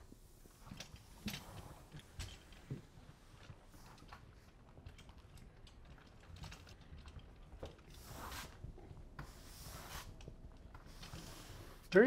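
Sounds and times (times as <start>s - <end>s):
broom bristles brushing membrane: 8.0s - 8.6s, 9.3s - 10.2s.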